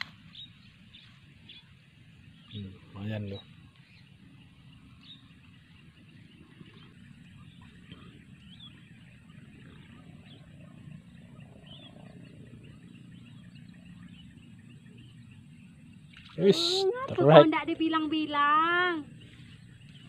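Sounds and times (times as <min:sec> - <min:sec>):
steady low rumble: 0:00.0 - 0:16.3.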